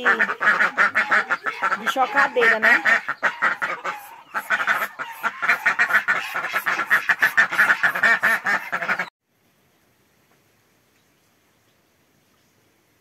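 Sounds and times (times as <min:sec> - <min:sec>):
ducks quacking: 0:00.0 - 0:09.1.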